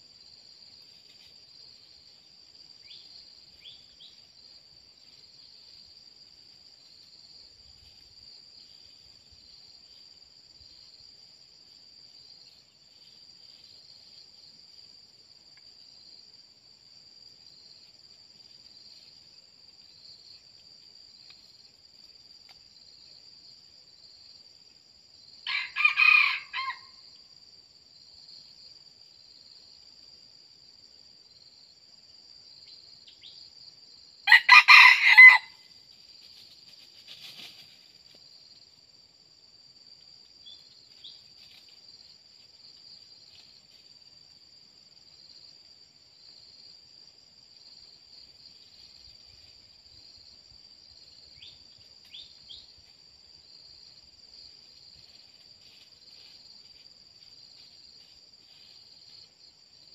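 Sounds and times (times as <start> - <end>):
insects droning: 0.0 - 59.9
rooster crowing: 25.4 - 27.0, 34.2 - 35.6.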